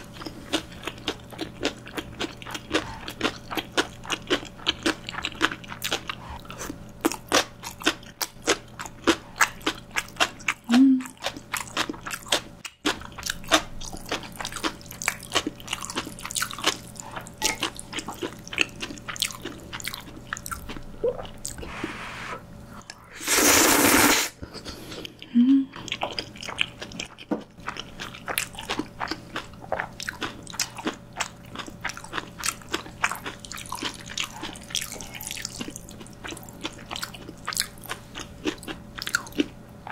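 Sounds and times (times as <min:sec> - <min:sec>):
crunchy chewing: 0:00.0 - 0:21.7, 0:24.6 - 0:39.9
noodle slurp: 0:23.1 - 0:24.9.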